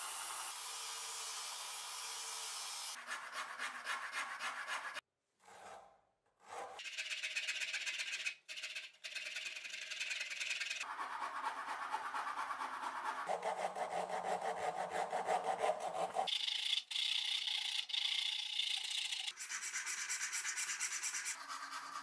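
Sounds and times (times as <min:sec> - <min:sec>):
file scraping wood: 0:03.0 - 0:16.3.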